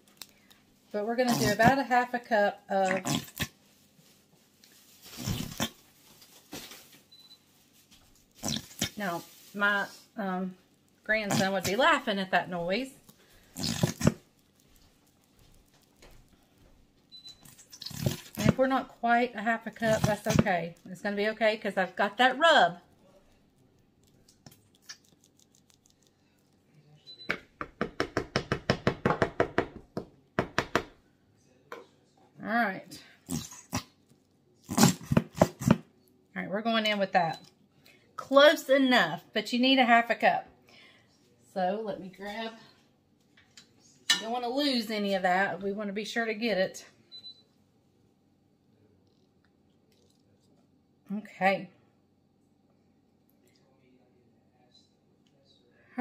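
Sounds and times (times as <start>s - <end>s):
squeeze bottle sputtering: 1.2s - 1.8s, 2.8s - 3.6s, 5.0s - 5.9s, 8.1s - 9.7s, 11.0s - 12.2s, 13.0s - 16.5s, 17.2s - 20.8s, 34.6s - 35.8s
plastic bottle knocking: 27.3s - 30.9s.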